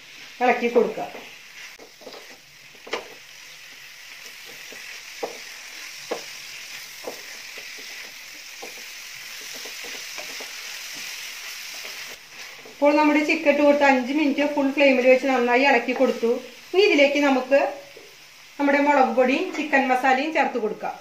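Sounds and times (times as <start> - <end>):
chicken sizzling in a pan: 0.0 - 21.0
spatula scraping and clicking: 1.8 - 3.2.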